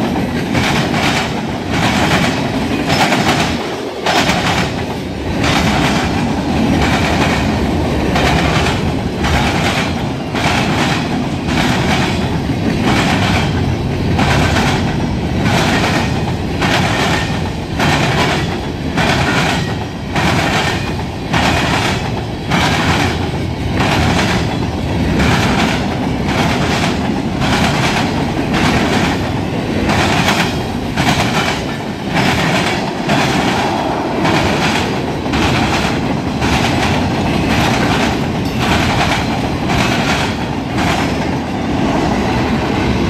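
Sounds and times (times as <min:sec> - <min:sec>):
moving train rumble: 0:00.0 - 0:43.0
train wheels clickety-clack: 0:00.0 - 0:43.0.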